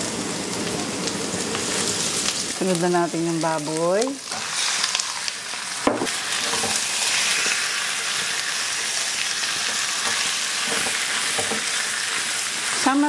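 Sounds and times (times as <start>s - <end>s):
meat sizzling in hot oil: 0.0s - 13.0s
knock: 5.9s - 6.1s.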